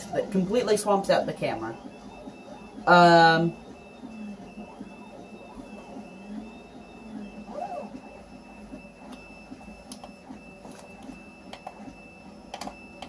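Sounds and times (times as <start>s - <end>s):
faint machine whir: 0.0s - 13.0s.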